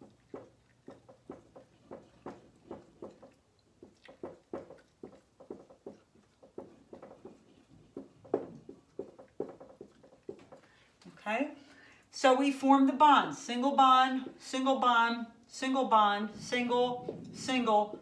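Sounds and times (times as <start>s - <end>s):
marker tapping on whiteboard: 0.3s - 10.7s.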